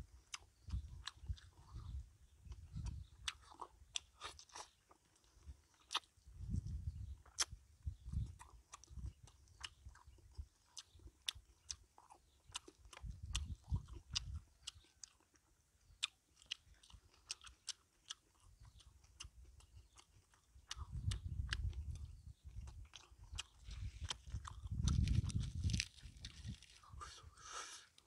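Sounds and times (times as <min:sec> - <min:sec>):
soft low thudding of chewing: 0:00.1 - 0:27.2
wet mouth clicks and smacks: 0:16.0 - 0:25.8.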